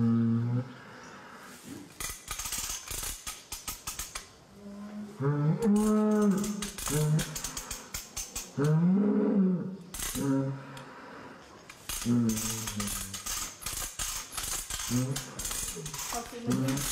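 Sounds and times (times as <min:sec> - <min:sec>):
metallic ratchet clicks: 0:02.0 - 0:04.3, 0:05.8 - 0:08.8, 0:09.9 - 0:10.3, 0:11.7 - 0:16.9.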